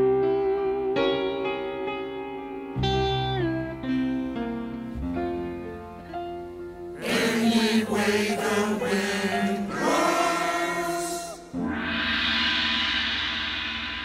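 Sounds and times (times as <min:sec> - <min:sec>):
sustained instrumental chords: 0:01.1 - 0:14.0
group of voices singing: 0:07.0 - 0:11.6.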